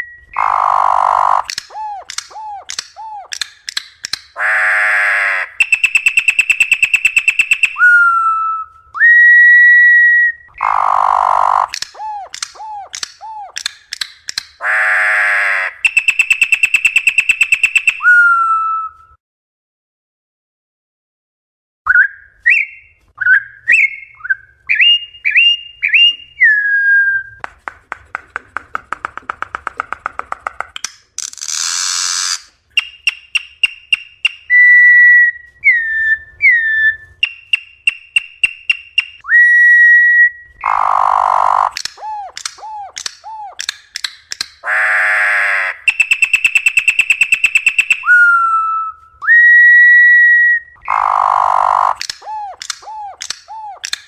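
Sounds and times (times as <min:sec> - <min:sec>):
bird singing whistles and trills: 0:00.0 - 0:03.9, 0:05.6 - 0:13.7, 0:15.8 - 0:19.2, 0:21.9 - 0:27.4, 0:32.8 - 0:43.6, 0:45.9 - 0:54.0.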